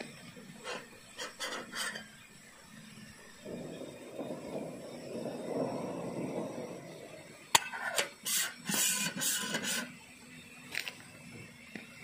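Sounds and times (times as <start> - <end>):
low rubbing noise: 0.0 - 10.1
lid clattering and scraping: 0.6 - 2.2.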